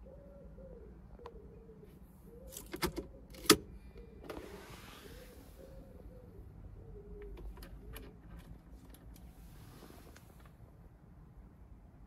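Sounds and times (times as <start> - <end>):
pigeon cooing: 0.0 - 8.2.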